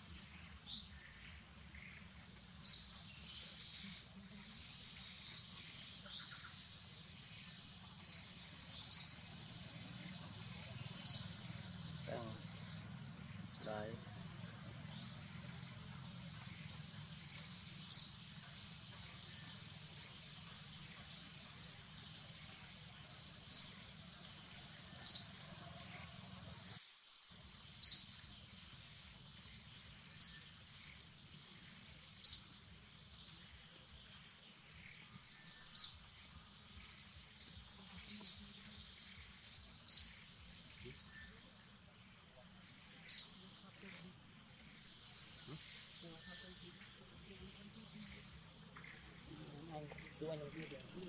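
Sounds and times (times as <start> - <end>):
faint high-pitched forest drone: 0.0 - 51.0.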